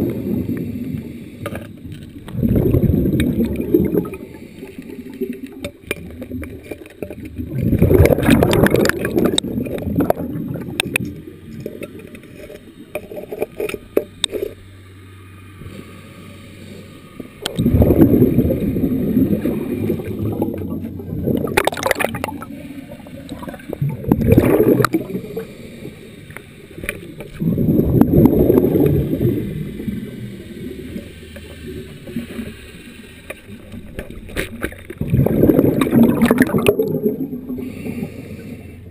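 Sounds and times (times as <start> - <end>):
underwater bubbles bursting: 0.0 - 1.2, 1.8 - 12.2, 17.4 - 25.6, 26.7 - 32.6, 33.4 - 38.3.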